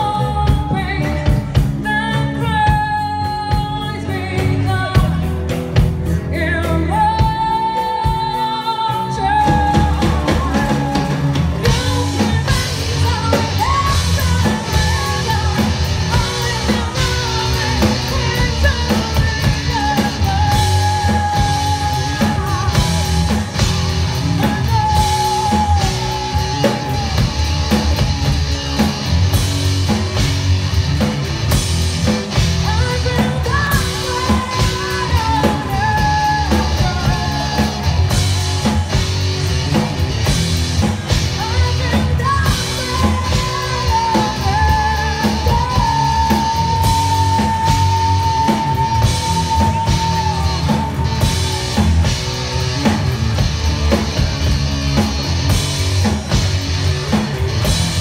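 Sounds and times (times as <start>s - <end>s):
woman singing: 0.0s - 29.0s, 32.3s - 39.0s, 40.8s - 52.2s
bass guitar: 0.0s - 58.0s
drum kit: 0.0s - 58.0s
electric guitar: 0.0s - 58.0s.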